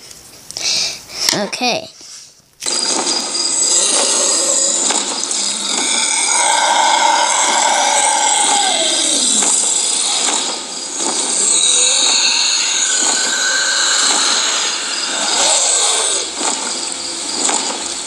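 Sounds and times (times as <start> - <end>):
fog machine hiss: 2.6 - 18.0
animatronic dragon growling: 3.8 - 16.7.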